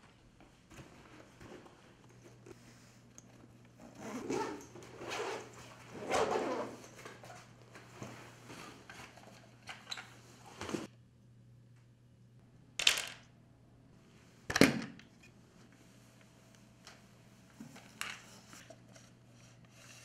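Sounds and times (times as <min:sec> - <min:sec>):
low electrical hum: 0:00.0 - 0:20.0
zipper rasping open: 0:03.8 - 0:07.0.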